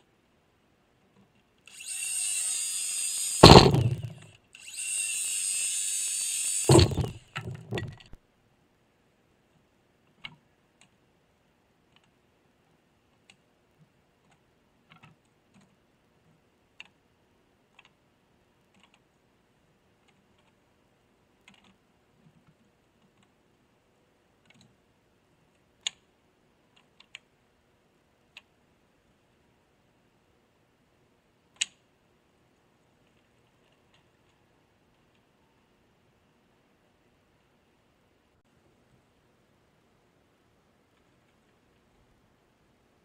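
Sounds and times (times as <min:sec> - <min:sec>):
wooden boards clacking and knocking: 0:03.4 - 0:04.2, 0:06.7 - 0:08.1.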